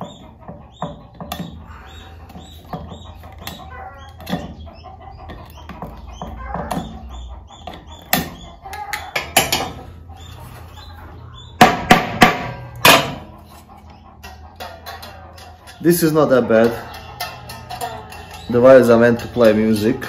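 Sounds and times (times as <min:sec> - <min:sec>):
hammer striking wooden frame: 0:11.6 - 0:13.3
sharp knocks: 0:11.6 - 0:13.3.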